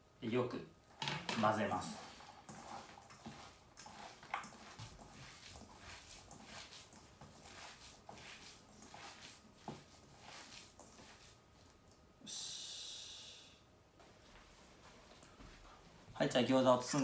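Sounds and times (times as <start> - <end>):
hands squishing wet filling: 1.8 - 12.1.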